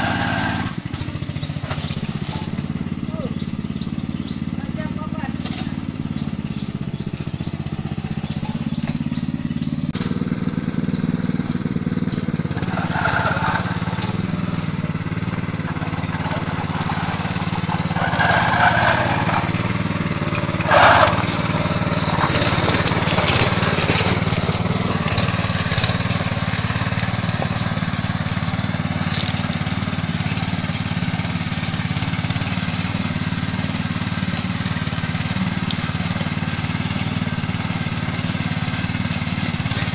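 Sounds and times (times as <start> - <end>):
small engine running: 0.0 - 39.9
clattering: 12.5 - 19.8.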